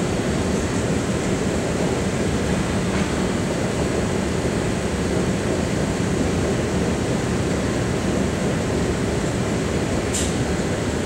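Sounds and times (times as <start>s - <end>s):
subway platform rumble: 0.0s - 11.0s.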